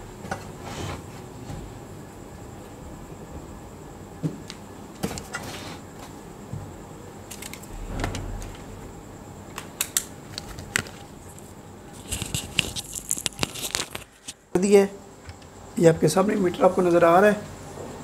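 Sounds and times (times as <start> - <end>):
brief low rumble: 7.7 - 10.6.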